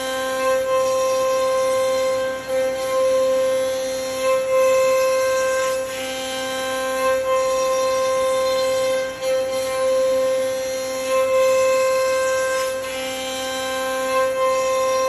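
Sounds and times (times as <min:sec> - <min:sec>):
router spindle whining: 0:00.0 - 0:15.0.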